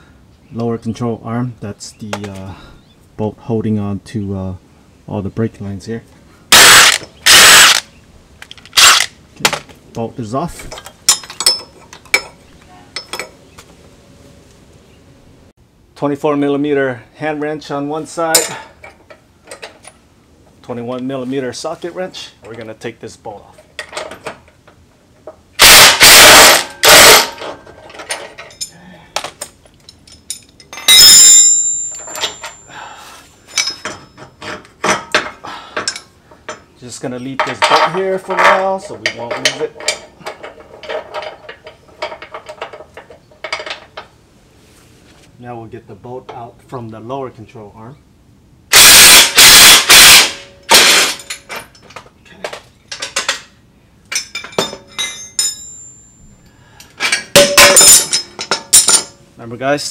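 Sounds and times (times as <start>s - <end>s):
loud metallic clang: 6.5s - 7.8s, 25.6s - 27.7s, 30.8s - 32.6s, 48.7s - 51.7s, 57.1s - 59.2s
metal tools knocking on bolt: 10.7s - 12.4s, 57.0s - 59.2s
steel tools knocking and clinking: 10.7s - 12.4s, 13.0s - 13.4s, 18.3s - 20.0s, 25.6s - 32.8s, 33.5s - 44.1s, 49.8s - 53.5s, 54.1s - 59.2s
loud metal bangs: 25.6s - 27.7s, 48.7s - 51.3s, 57.2s - 59.2s
metallic ring: 29.9s - 35.2s, 54.2s - 56.5s, 57.1s - 59.3s.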